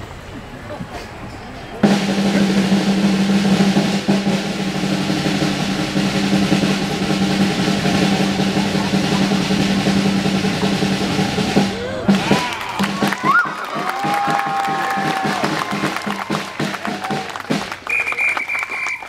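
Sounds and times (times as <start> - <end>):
drum roll: 1.8 - 18.5.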